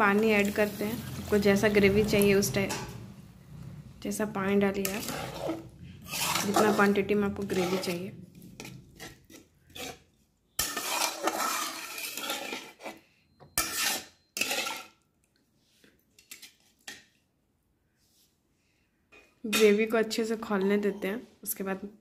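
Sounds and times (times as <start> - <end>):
metal spatula scraping pan: 0.0 - 3.2, 3.8 - 15.0.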